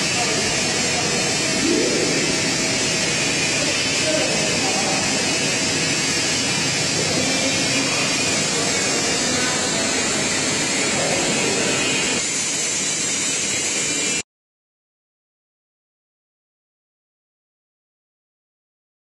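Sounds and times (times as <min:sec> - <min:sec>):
screen-printing machine running: 0:00.0 - 0:14.2.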